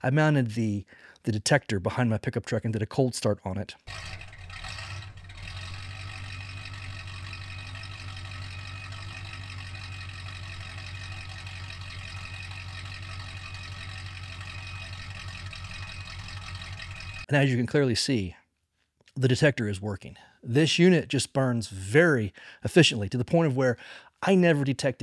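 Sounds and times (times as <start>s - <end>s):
truck engine idling: 3.9s - 17.3s.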